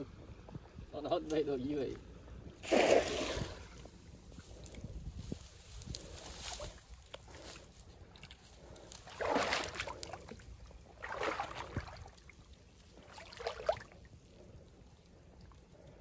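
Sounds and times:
water splashing from a net: 0:02.6 - 0:03.8, 0:09.0 - 0:14.0.

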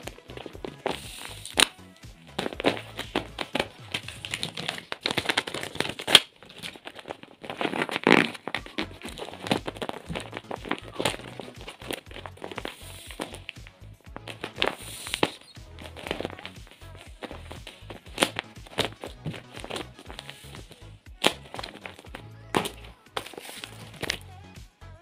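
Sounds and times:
plastic packet crinkling: 0:00.0 - 0:24.3.

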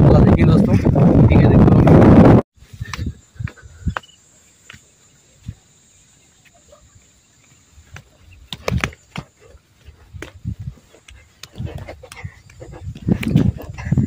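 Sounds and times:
footsteps on sandy rocky ground: 0:07.4 - 0:14.0.

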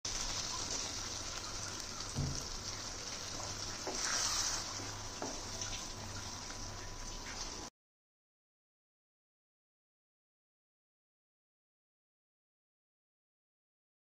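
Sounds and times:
curry sizzling in a pan: 0:00.1 - 0:07.7
liquid poured into pan: 0:00.1 - 0:07.7
dull knock: 0:02.2 - 0:02.5
spatula tapping and scraping: 0:03.4 - 0:04.3.

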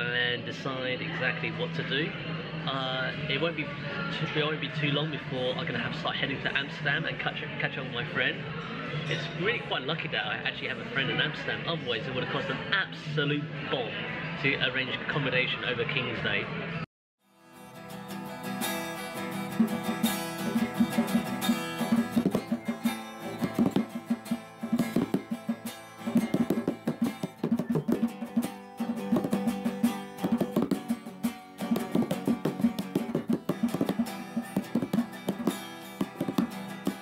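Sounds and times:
plucked guitar music: 0:17.5 - 0:37.0.

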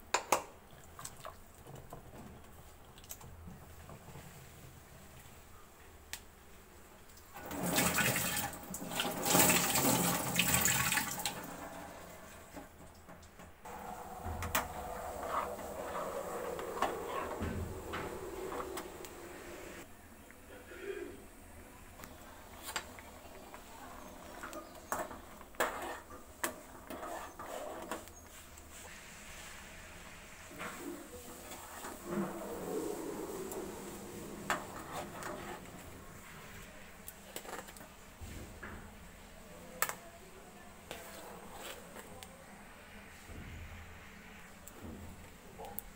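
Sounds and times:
water running and splashing: 0:07.4 - 0:11.8, 0:13.7 - 0:19.8
spoon scraping metal pot: 0:13.8 - 0:19.2, 0:26.8 - 0:28.1.

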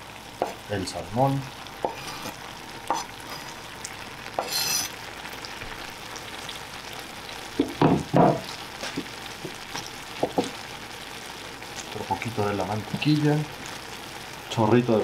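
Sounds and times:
pasta sizzling in a frying pan: 0:00.0 - 0:15.0
knife scraping wooden board: 0:01.8 - 0:03.4, 0:04.4 - 0:04.9.

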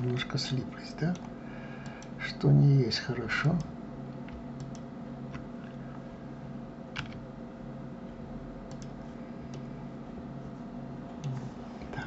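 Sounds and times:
low electrical hum: 0:00.0 - 0:12.0
computer mouse and keyboard clicks: 0:04.3 - 0:05.4, 0:07.0 - 0:07.2, 0:08.7 - 0:09.7, 0:11.2 - 0:11.5.

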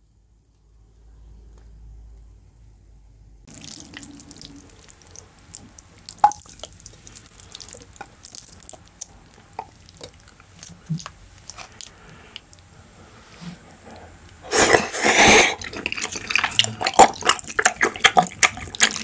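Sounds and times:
low hum: 0:00.0 - 0:14.5
wet chewing: 0:03.5 - 0:12.8, 0:13.8 - 0:19.0
slurping noodles: 0:13.3 - 0:19.0.

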